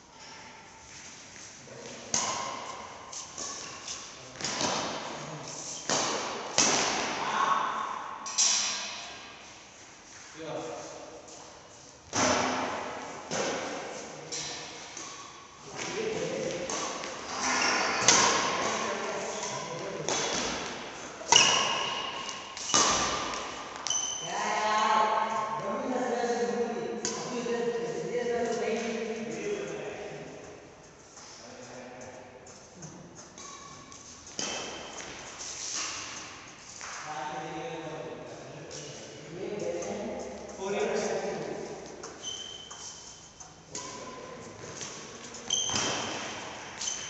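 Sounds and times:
rackets hitting shuttlecock: 2.1 - 5.2, 5.8 - 7.3, 12.1 - 18.8, 20.0 - 24.2, 27.0 - 27.5, 33.4 - 36.2, 43.7 - 47.0.

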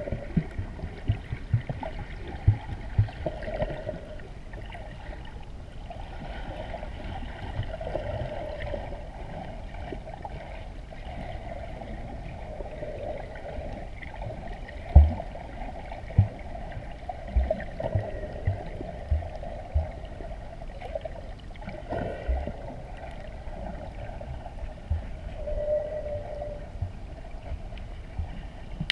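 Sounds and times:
muffled underwater water wash: 0.0 - 28.9.

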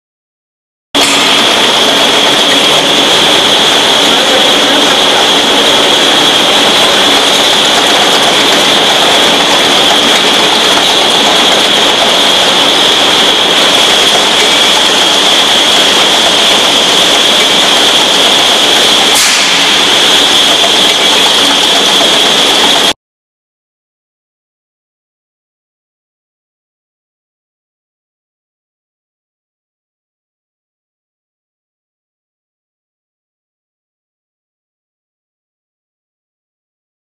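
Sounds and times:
high steady whine: 1.0 - 23.0
machine running: 1.0 - 23.0.

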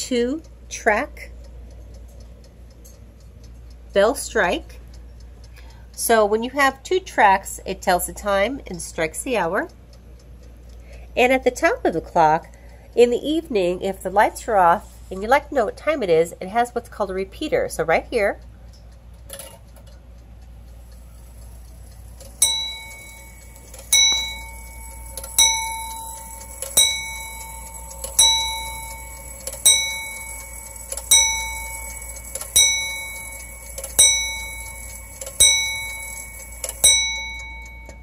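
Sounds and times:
clock hammer striking bell: 22.2 - 38.0.

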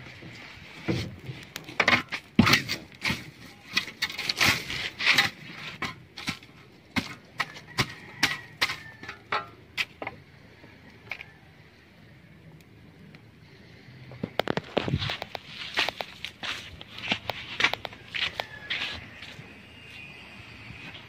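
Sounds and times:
dry palm fronds crackling in fire: 0.0 - 10.1, 14.2 - 20.1.

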